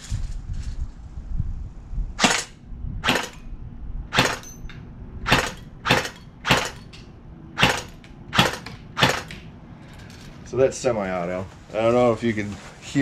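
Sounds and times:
airsoft gun single shots: 2.2 - 3.4, 4.1 - 4.5, 5.2 - 6.9, 7.6 - 9.4.

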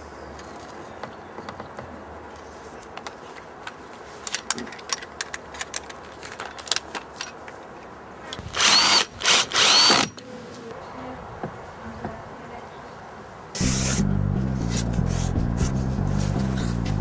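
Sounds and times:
power drill driving screws: 8.4 - 10.2.

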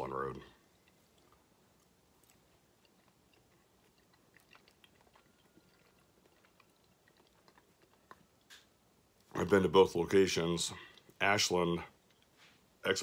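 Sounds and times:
person chewing: 0.6 - 9.3.

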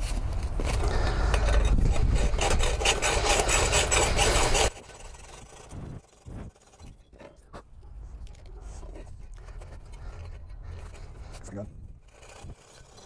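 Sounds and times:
hacksaw cutting through metal: 0.8 - 7.1, 9.2 - 13.0.

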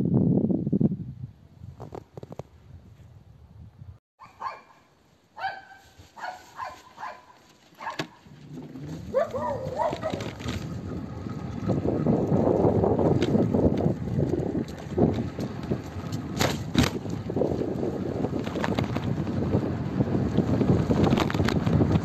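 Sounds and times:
dog barking: 4.2 - 8.2, 9.1 - 10.2.

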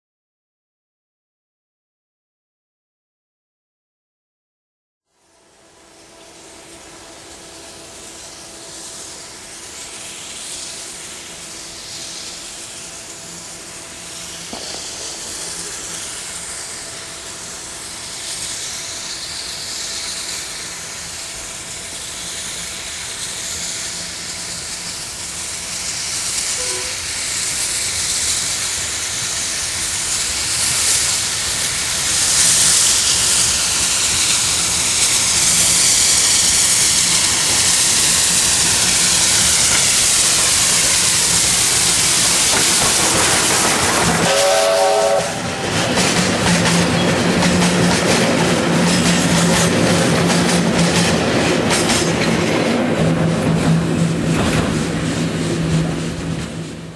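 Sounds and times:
steam locomotive hissing: 5.2 - 56.9
short pitched note: 26.6 - 27.0.

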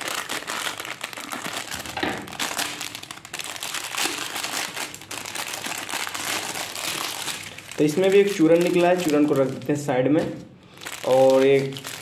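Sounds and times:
scissors cutting packet: 0.0 - 2.8, 11.0 - 12.0
snack packet crinkling: 0.0 - 9.9, 10.7 - 12.0.

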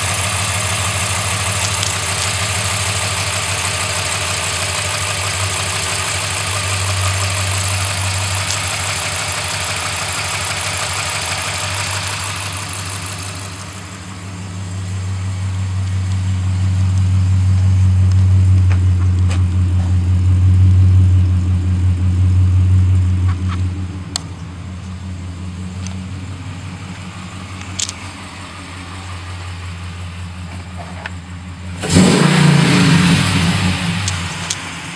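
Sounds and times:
low exhaust rumble: 0.0 - 34.9
truck engine idling: 0.0 - 34.9.

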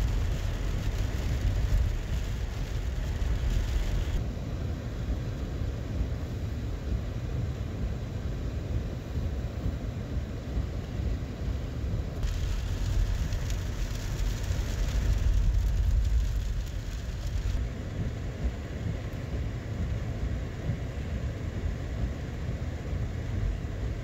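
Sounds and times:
low rumbling background noise: 0.0 - 24.0
hiss: 12.2 - 17.7.

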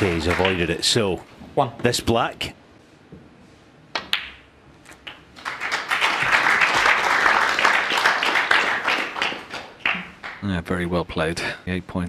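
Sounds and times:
audience applause: 0.0 - 0.7, 5.4 - 10.4.

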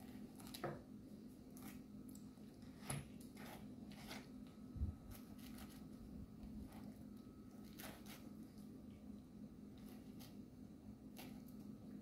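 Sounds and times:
low steady hum: 0.0 - 12.0
knife scraping pineapple: 2.6 - 8.4, 9.8 - 10.4.

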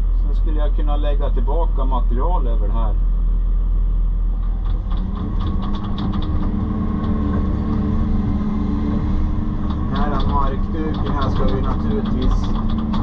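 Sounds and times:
excavator diesel engine running: 0.0 - 13.0
small clicks and scrapes: 4.4 - 13.0.

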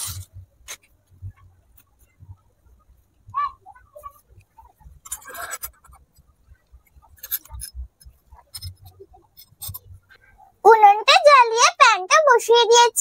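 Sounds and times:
short scrape: 0.0 - 0.9.

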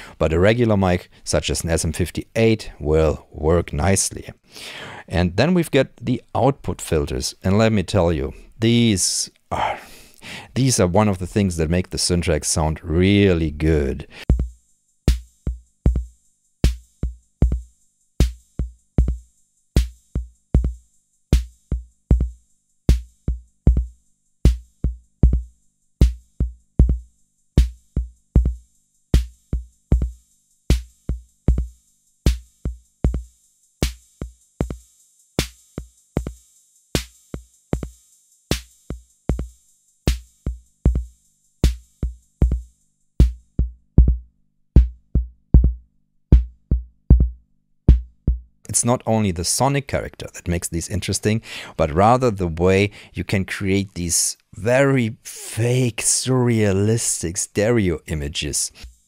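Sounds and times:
drum machine kick drum: 14.2 - 20.8, 21.4 - 23.9, 24.5 - 28.6, 29.2 - 34.8, 35.4 - 36.4, 37.8 - 48.6.

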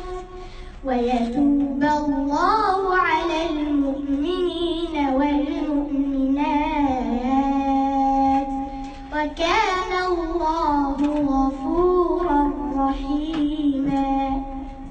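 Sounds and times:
girl chanting melodically: 0.0 - 14.9.

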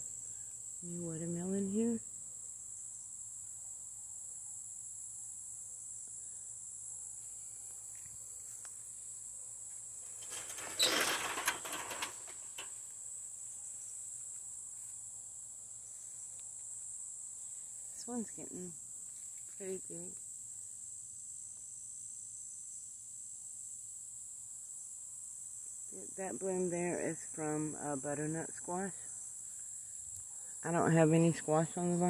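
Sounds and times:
crickets chirping: 0.0 - 32.0
loud rustle: 10.0 - 12.8.

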